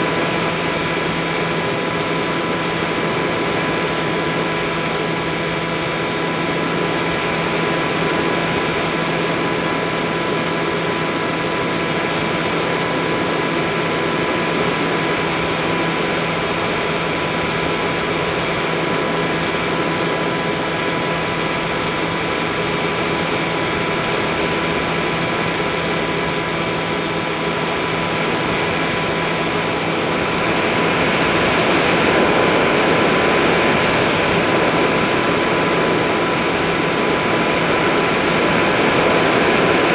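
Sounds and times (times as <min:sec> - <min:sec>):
electric motor whine: 0:00.0 - 0:39.9
rushing air: 0:14.1 - 0:39.9.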